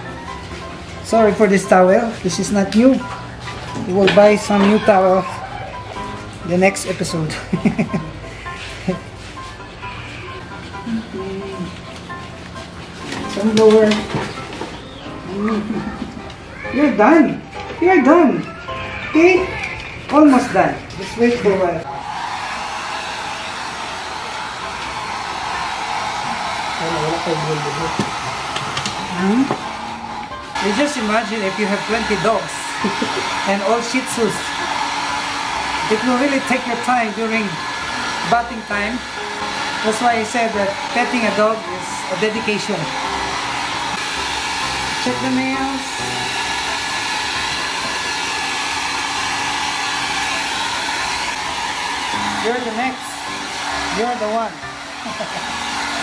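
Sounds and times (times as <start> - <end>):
hair dryer blowing: 3.8 - 5.4, 20.2 - 56.0.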